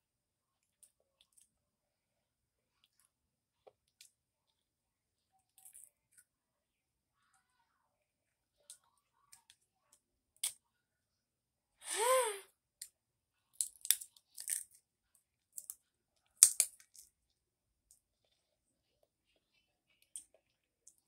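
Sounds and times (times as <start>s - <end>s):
person humming: 11.8s - 12.4s.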